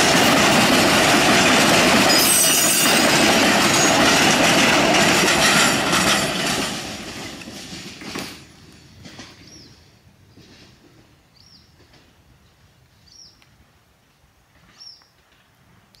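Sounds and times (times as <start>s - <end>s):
freight wagons rolling on rails: 0.0s - 9.8s.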